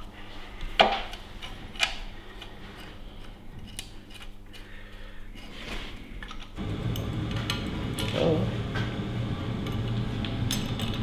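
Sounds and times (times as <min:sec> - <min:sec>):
metal clinks and clicks: 0:09.6 - 0:11.0.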